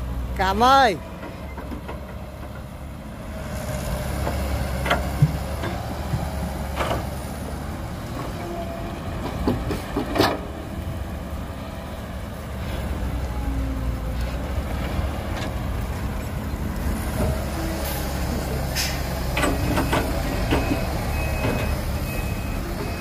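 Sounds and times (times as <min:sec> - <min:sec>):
heavy diesel machinery rumbling: 0:00.0 - 0:23.0.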